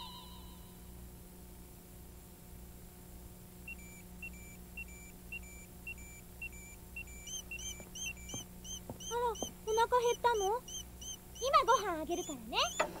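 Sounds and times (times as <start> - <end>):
fast electronic chirps: 3.7 - 13.0.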